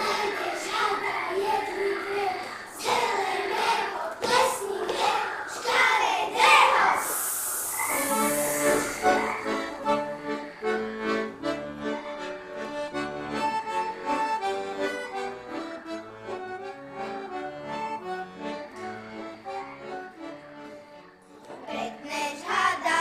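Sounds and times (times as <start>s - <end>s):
folk band playing: 7.9s - 21.9s.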